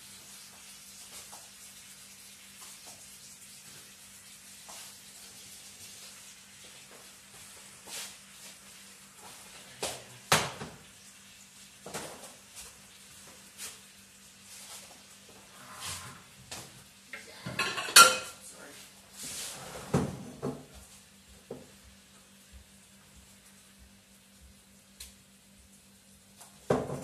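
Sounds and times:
cookware and utensils clattering: 17.2 - 18.4.

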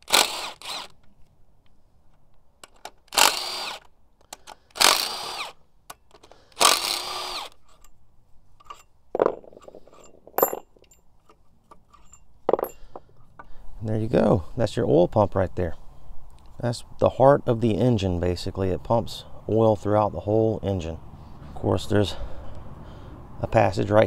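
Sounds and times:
cordless power tool whining: 0.0 - 1.0, 3.1 - 5.6, 6.5 - 7.6.

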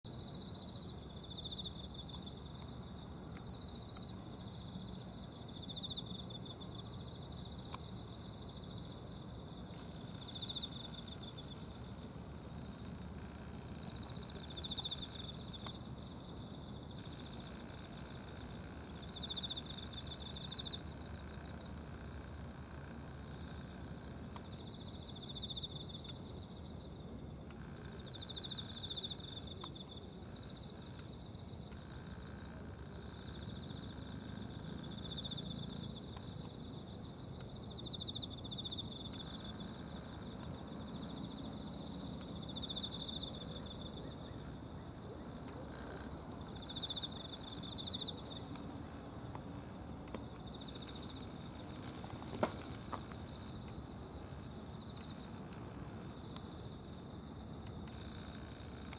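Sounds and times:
insects trilling in bursts: 0.1 - 58.9.

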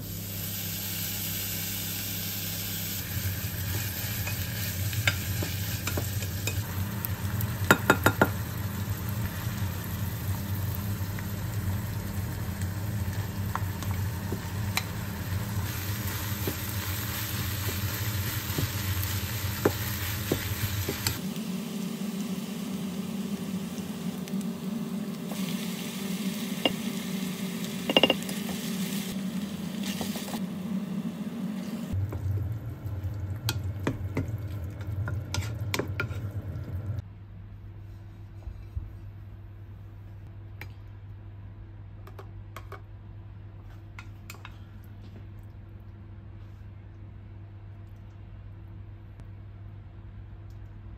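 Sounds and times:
meat and vegetables sizzling: 0.0 - 37.0
spatula tapping pot: 27.9 - 28.2.

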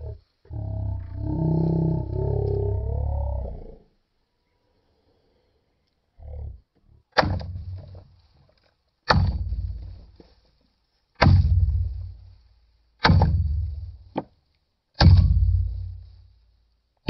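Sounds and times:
hatchet chopping log: 7.2 - 7.8, 9.0 - 9.8, 11.2 - 11.8, 13.0 - 14.3, 15.0 - 15.6.

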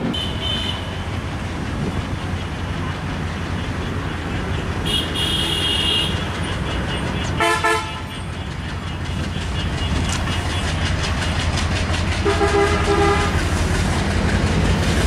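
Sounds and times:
diesel train rumbling: 0.0 - 15.0
train horn blast: 4.8 - 6.3, 6.9 - 8.3, 12.2 - 13.4.

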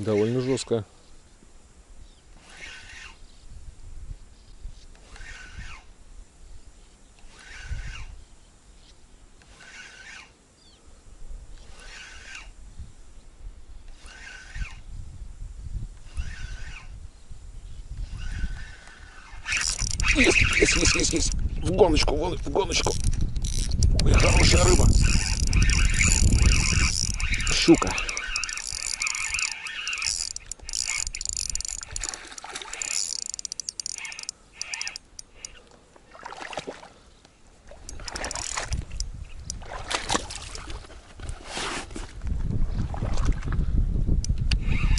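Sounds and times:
spinning reel whirring: 2.4 - 3.3, 4.9 - 5.9, 7.2 - 8.2, 9.4 - 10.4, 11.6 - 12.6, 13.9 - 14.9, 16.0 - 17.0, 18.0 - 35.6, 37.8 - 39.1, 44.5 - 44.9
wind rumble on microphone: 2.8 - 6.7, 7.3 - 8.4, 11.1 - 29.5, 37.8 - 44.9.

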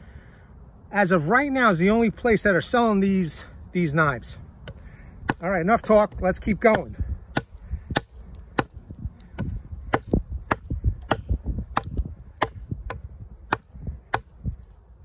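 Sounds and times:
knife chopping into wood: 4.6 - 8.8, 9.4 - 14.4.

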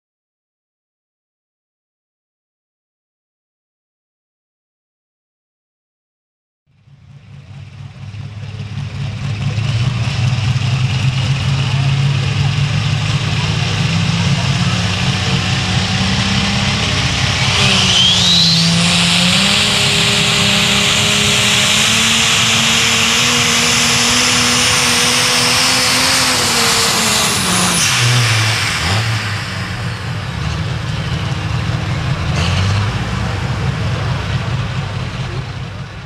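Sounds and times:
diesel tractor engine at full power: 6.7 - 36.0
high rising turbo whistle: 14.3 - 31.5.

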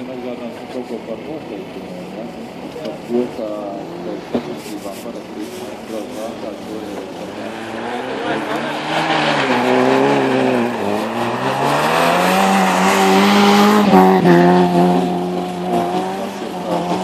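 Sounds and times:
rally car engine revving: 0.0 - 17.0
car rushing past: 5.6 - 17.0.

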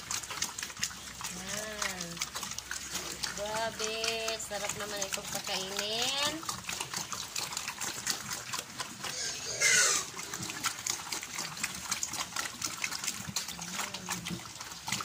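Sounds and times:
pigs chomping wet feed: 0.0 - 15.0
pigs grunting: 0.0 - 15.0
pig squealing: 6.4 - 11.6.

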